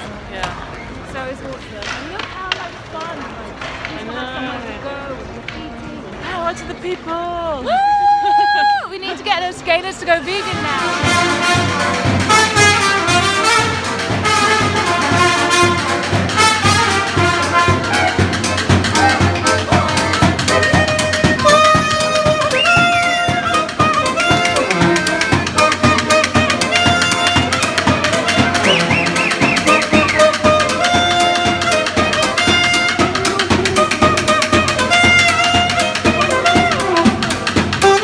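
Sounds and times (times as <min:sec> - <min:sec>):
brass instruments: 0:09.4 - 0:38.0
steady drum beat: 0:09.8 - 0:38.0.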